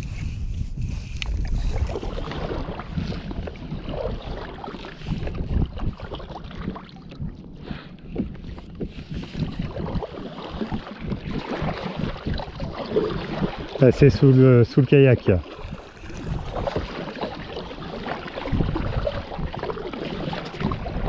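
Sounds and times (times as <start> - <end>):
water splashing against kayak hull: 0.0 - 21.0
wind rumbling on microphone: 0.0 - 21.0.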